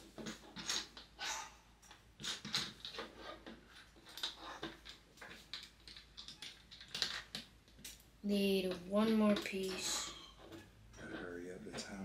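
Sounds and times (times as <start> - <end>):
plastic bricks clicking and rattling: 3.8 - 8.0.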